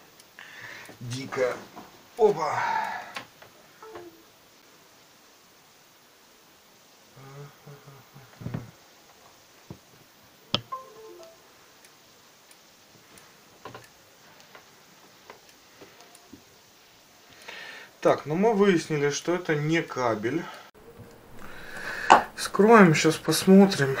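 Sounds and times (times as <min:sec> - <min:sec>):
brief tone: 0:03.8 - 0:04.2, 0:10.7 - 0:11.4.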